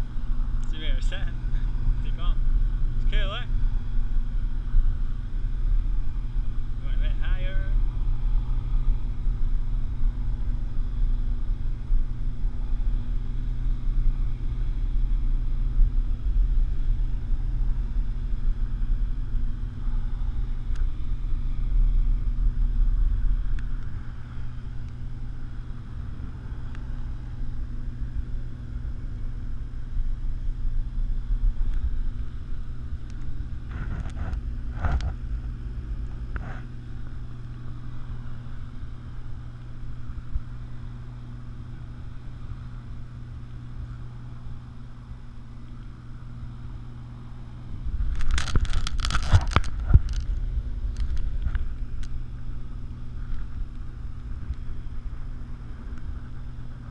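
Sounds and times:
low steady hum: 0.0 - 56.9
wind rumble on microphone: 0.0 - 56.9.

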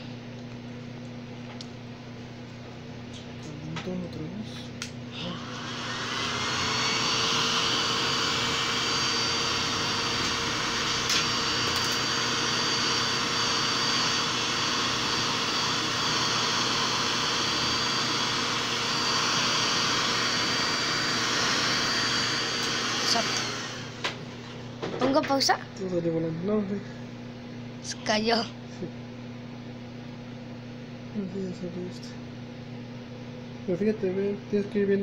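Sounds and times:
hair dryer running: 3.6 - 24.9.

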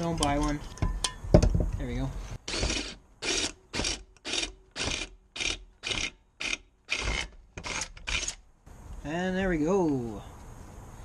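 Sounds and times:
cordless drill cutting metal: 2.4 - 8.4.

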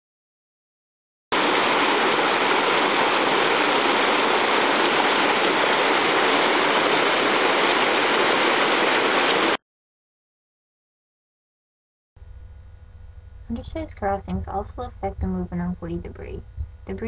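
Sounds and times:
water rushing over a drop: 1.3 - 9.6.

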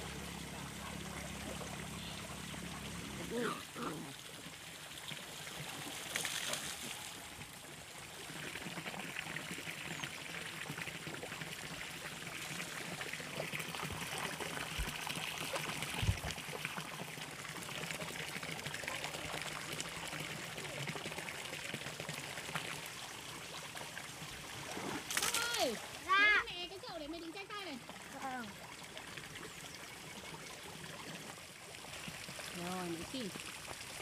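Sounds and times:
water trickling: 0.0 - 34.0.

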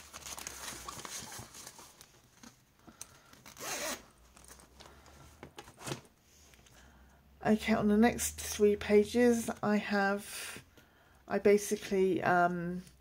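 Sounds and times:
zip rasping shut: 3.4 - 4.2.

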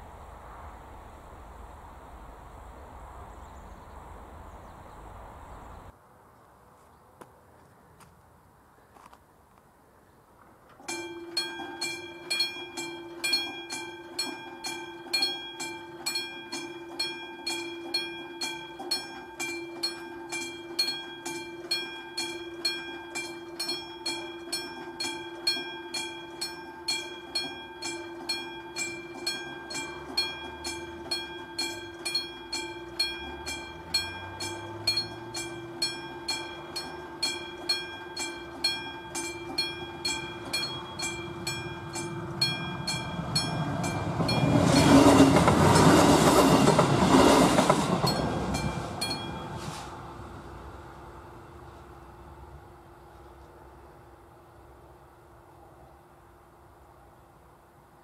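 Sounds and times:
level crossing warning bell: 10.8 - 53.1.

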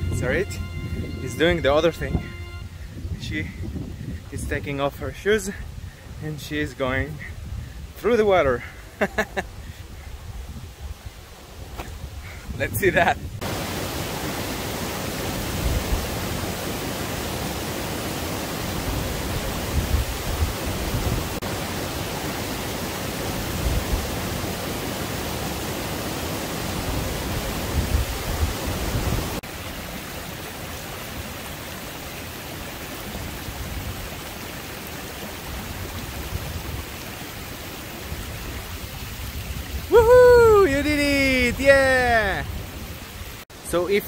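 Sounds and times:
wind buffeting microphone: 0.0 - 4.9
river flowing over stones: 13.4 - 44.0.

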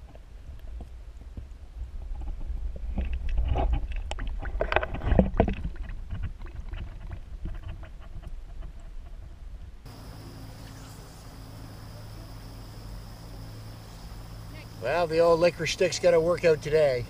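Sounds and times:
underwater rumble of moving water: 0.0 - 17.0
underwater clicks and knocks: 2.2 - 8.9.

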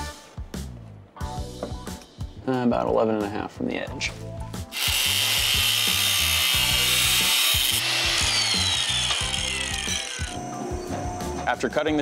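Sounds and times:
angle grinder cutting steel: 4.7 - 12.0
grinder winding down whine: 4.8 - 12.0.

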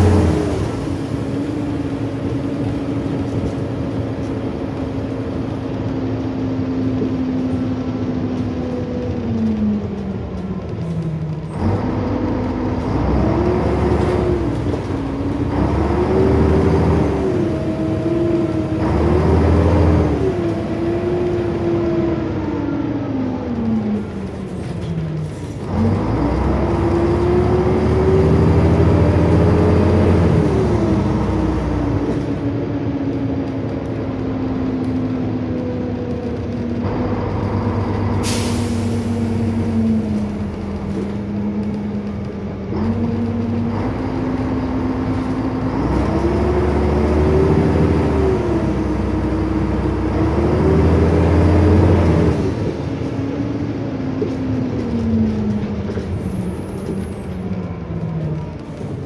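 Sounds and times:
bus diesel engine: 0.0 - 59.0
air brake hiss: 38.2 - 39.4.

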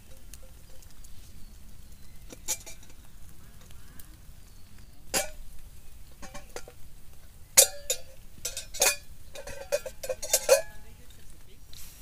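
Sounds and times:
metal cookware clinking: 2.3 - 3.0, 5.1 - 5.4, 6.2 - 6.8, 7.6 - 10.8.

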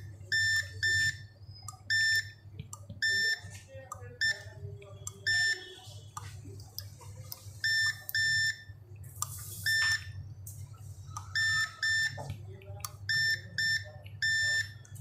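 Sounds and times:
multimeter short beeps: 0.3 - 2.4, 3.0 - 3.4, 5.1 - 5.7, 7.6 - 8.7, 9.6 - 10.2, 11.3 - 12.2, 13.1 - 14.8.

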